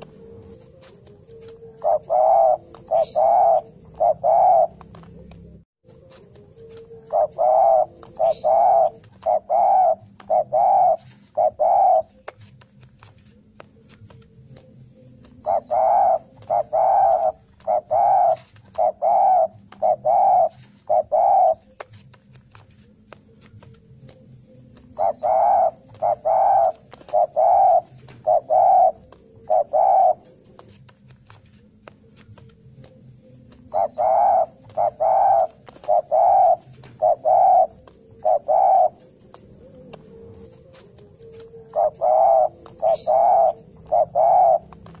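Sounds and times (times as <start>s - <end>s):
dove cooing: 0.0s - 12.6s, 13.2s - 45.0s.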